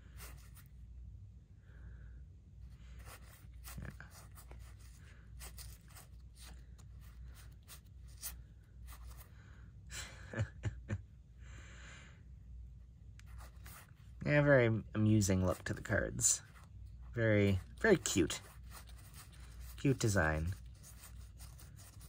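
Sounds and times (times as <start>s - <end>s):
playing cards sliding and ticking: 3.0s - 9.3s, 15.3s - 22.0s.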